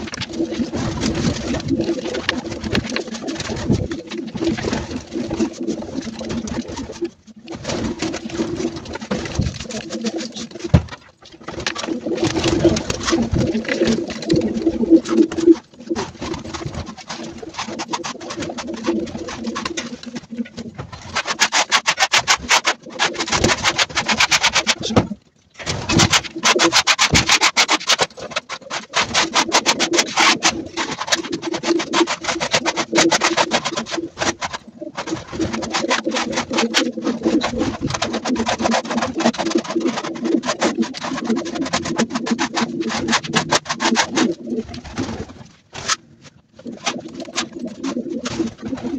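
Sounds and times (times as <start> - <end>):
pigeons cooing: 11.6 - 21.1, 46.7 - 48.9.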